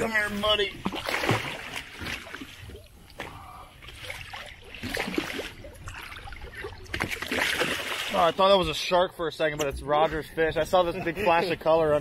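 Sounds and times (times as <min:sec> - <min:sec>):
water splashing beside boat hull: 0:00.0 - 0:08.9.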